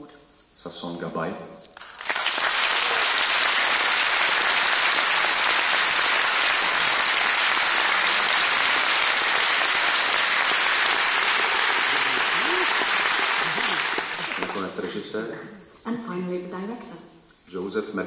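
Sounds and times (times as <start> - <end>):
audience applauding: 1.8 - 15.0.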